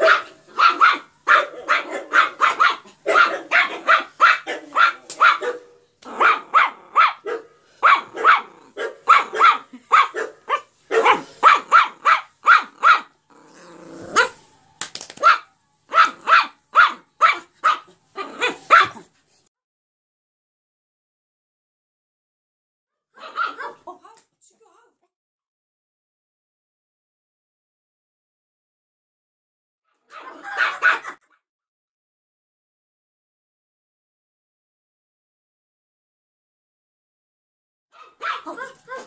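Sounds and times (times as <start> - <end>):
small dog barking: 0.0 - 13.2, 14.1 - 14.4, 15.2 - 19.1, 23.1 - 23.9, 30.0 - 31.3, 38.0 - 39.0.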